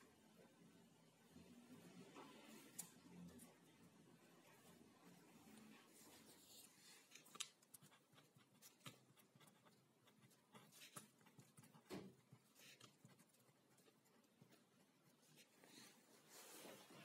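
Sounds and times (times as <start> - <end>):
pen scratching on paper: 7.6 - 15.6.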